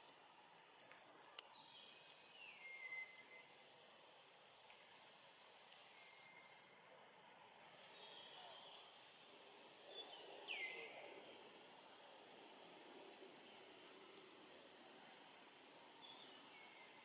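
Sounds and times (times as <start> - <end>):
downward-sweeping bird whistle: 2.4 - 3.6.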